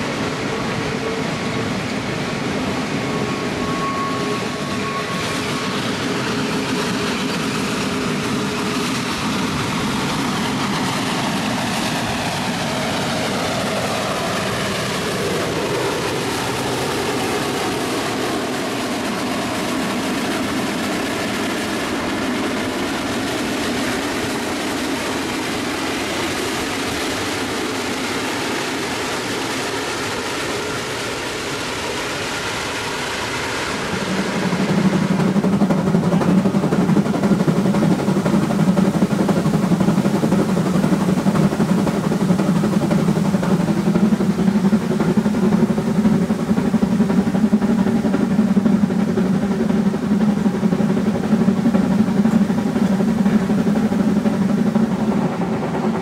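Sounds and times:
steam locomotive working hard: 0.0s - 56.0s
train wheels clattering on rails: 0.0s - 56.0s.

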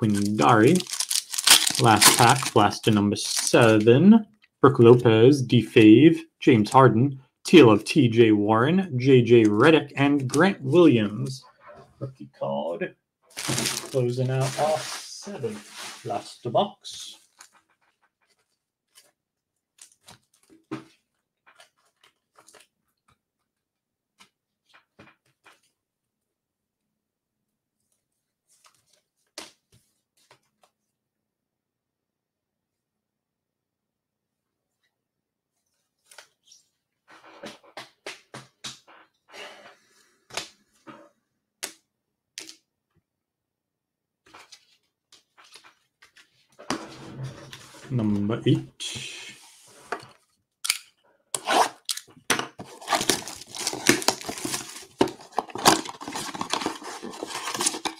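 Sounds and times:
crinkling of packaging being opened: 0.0s - 3.8s, 13.3s - 16.1s, 51.8s - 57.9s.

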